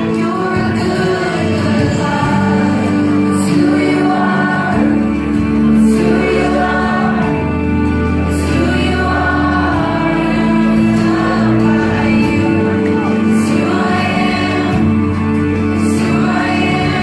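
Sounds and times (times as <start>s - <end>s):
sustained bass line: 0.0s - 17.0s.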